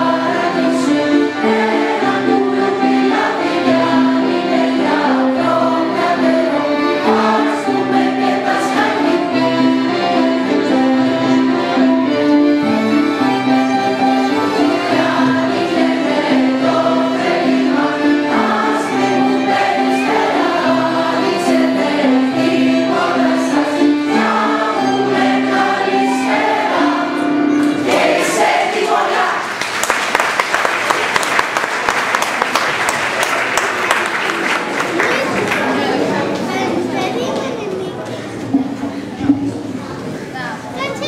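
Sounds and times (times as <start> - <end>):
violin: 0.0 - 29.3
keyboard: 0.0 - 29.4
mixed choir singing a carol: 0.0 - 29.6
applause: 29.5 - 36.4.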